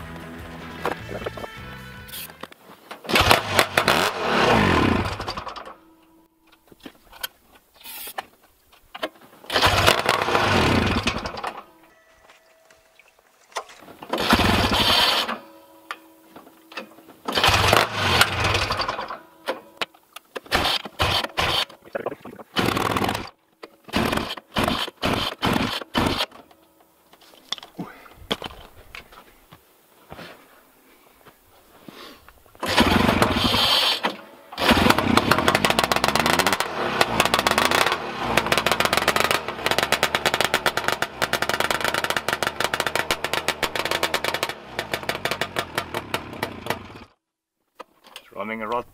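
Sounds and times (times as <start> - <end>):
two-stroke engine starting and dying: 3.0 - 5.8, 9.5 - 11.7, 14.0 - 15.5, 16.8 - 19.8, 20.5 - 21.8, 22.5 - 26.4, 32.6 - 47.2.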